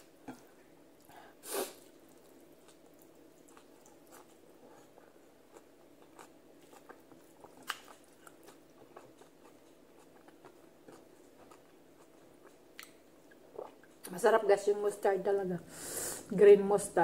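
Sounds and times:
faint steady hum: 0.0s - 17.0s
chewing with mouth clicks: 1.8s - 14.1s.

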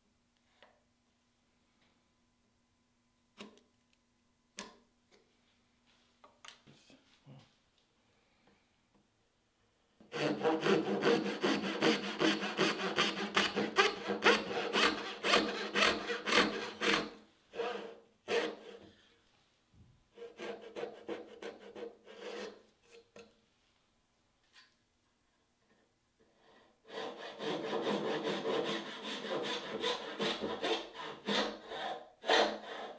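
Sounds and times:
hand saw cutting wood: 10.1s - 18.8s, 20.2s - 23.0s, 26.8s - 32.9s.

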